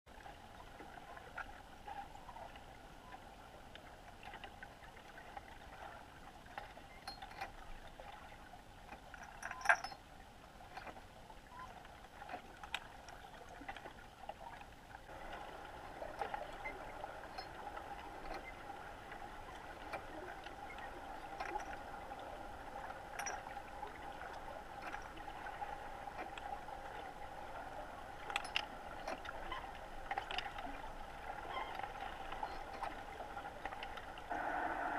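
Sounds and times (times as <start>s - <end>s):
steady underwater hum: 0.1s - 34.9s.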